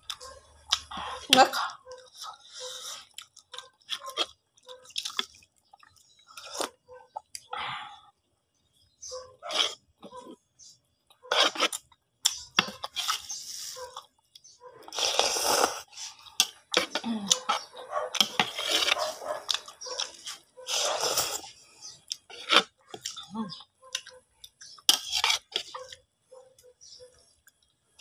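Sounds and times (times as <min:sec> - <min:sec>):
person slurping noodles: 0:14.9 - 0:17.6, 0:18.2 - 0:21.6.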